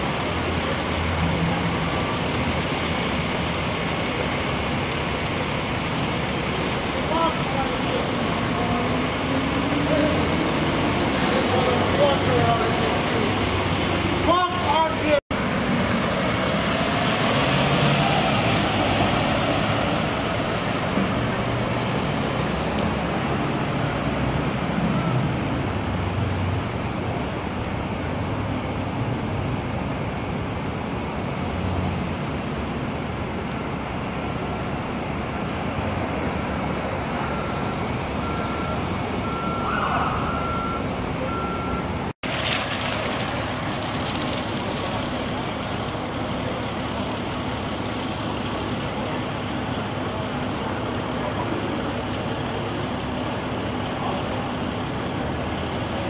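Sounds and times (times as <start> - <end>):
street traffic: 0.0 - 56.0
ambulance driving past: 15.3 - 28.0
short beeps: 37.2 - 41.9.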